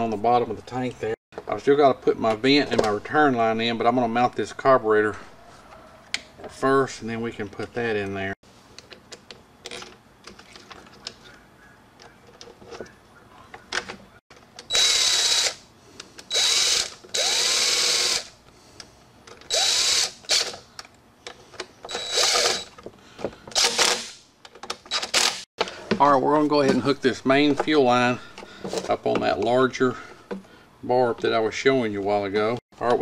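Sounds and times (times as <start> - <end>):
impact driver bursts: 14.7 - 15.6, 16.2 - 18.3, 19.5 - 20.5, 21.9 - 22.7, 23.5 - 24.2, 24.9 - 25.4.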